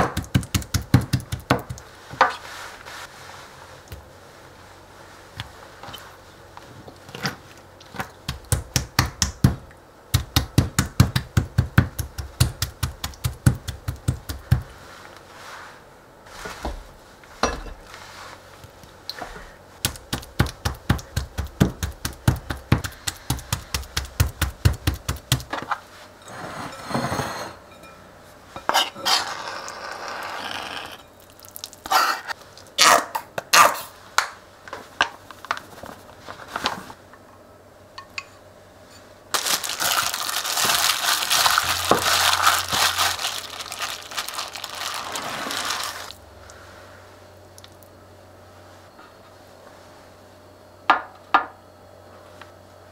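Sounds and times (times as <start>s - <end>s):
knife chopping on plastic board: 0.0s - 1.8s
knife scraping board: 28.6s - 31.0s.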